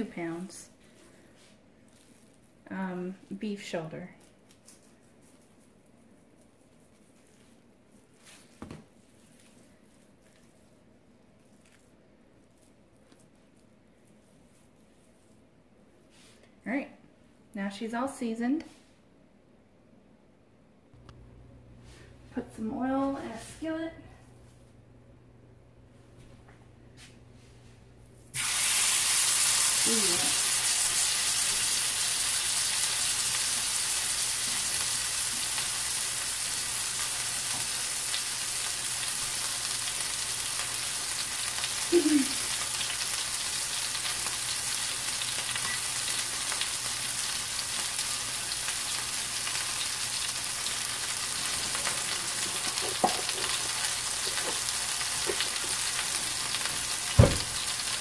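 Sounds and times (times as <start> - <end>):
meat sizzling in hot oil: 28.3 - 58.0.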